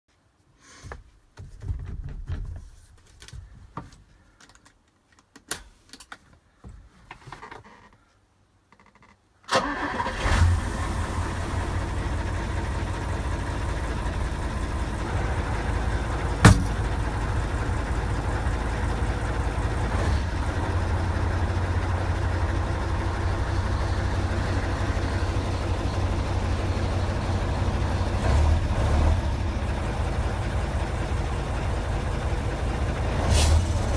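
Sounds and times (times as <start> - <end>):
irregular knocks and rustles: 0.7 - 8.1
diesel truck engine starting: 9.5 - 33.9
engine idling: 9.6 - 33.9.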